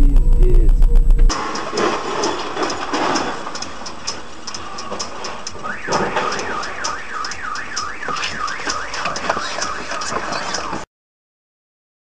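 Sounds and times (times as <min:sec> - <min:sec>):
road and engine noise: 0:01.2 - 0:10.9
light ticks: 0:02.7 - 0:05.6
car alarm wailing: 0:05.5 - 0:10.8.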